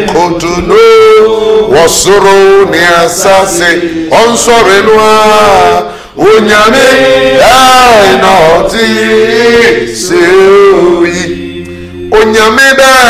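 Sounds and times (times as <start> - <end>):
man chant-like singing: 0.0 - 6.7, 12.1 - 13.0.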